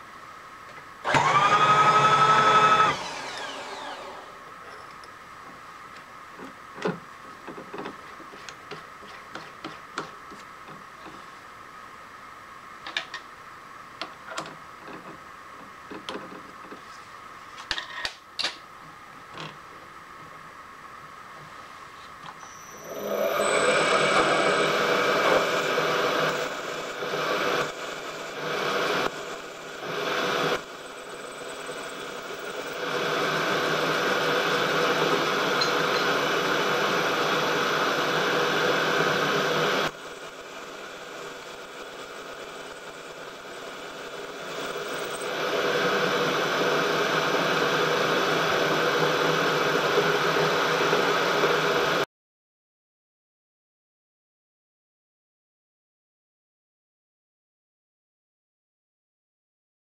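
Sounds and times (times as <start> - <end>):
milling machine drilling brass: 22.7 - 39.9.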